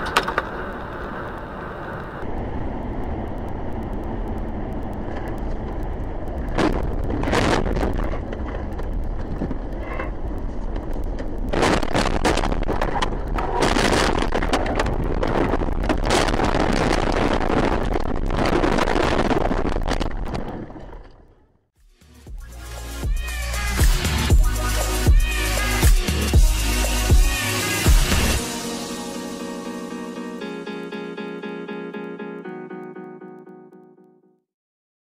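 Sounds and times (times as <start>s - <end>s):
car road and engine noise: 0.0s - 12.5s.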